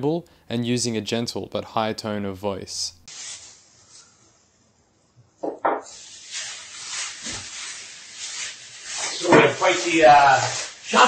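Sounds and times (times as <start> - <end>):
plastic bag rustling: 5.9 - 11.0.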